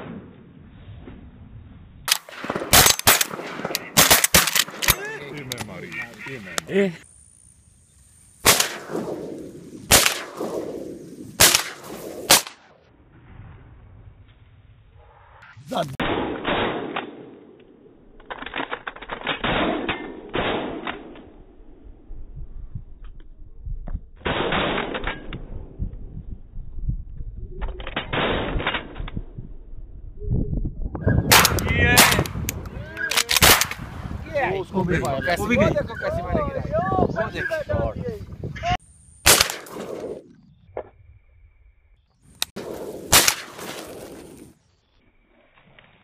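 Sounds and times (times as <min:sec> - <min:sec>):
shotgun shots with echo: 0:02.1 - 0:05.0, 0:08.4 - 0:12.6, 0:16.0 - 0:17.3, 0:31.3 - 0:32.4, 0:33.2 - 0:33.9, 0:39.2 - 0:40.2, 0:42.6 - 0:43.9.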